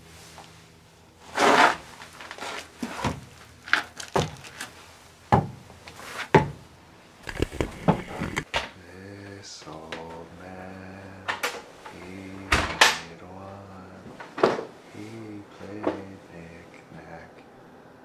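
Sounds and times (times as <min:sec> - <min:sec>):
scraping rustle: 0:00.0 - 0:05.2, 0:05.8 - 0:06.4, 0:07.2 - 0:08.5
knocks and thuds: 0:05.3 - 0:05.6.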